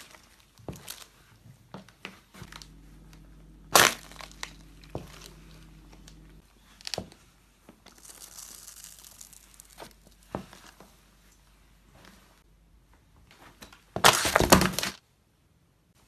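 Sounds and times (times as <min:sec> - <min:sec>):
candy crunching under shoe: 0:07.8 - 0:10.3.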